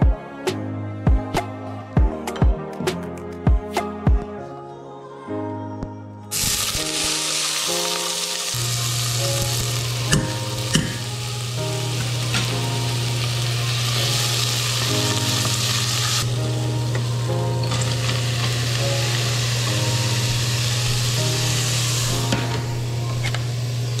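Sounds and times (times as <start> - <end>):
onion sizzling in hot oil: 6.3 - 24.0.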